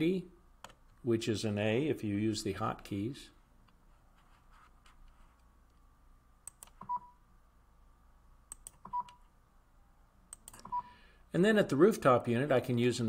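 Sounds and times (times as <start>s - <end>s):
computer mouse clicking: 6.4s - 6.9s, 8.5s - 9.2s, 10.3s - 10.8s.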